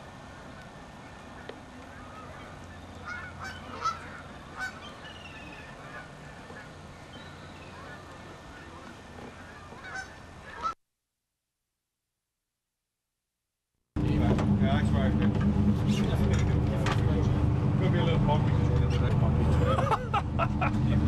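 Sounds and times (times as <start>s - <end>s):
geese honking: 1.0s - 10.8s.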